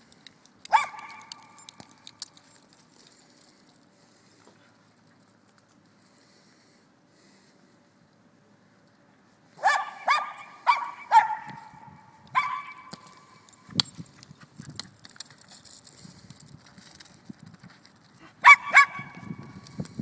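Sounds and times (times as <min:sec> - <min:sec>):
dog barking: 0:00.7 - 0:01.3, 0:09.6 - 0:12.9, 0:18.4 - 0:19.2.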